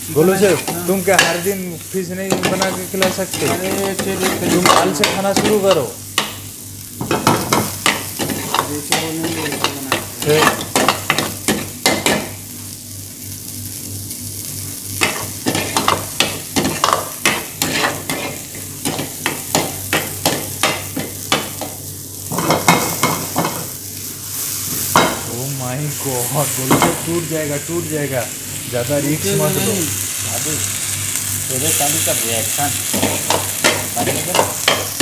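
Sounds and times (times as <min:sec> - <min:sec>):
oil sizzling: 0:00.0 - 0:35.0
metal ladle scraping a pan: 0:17.6 - 0:18.5.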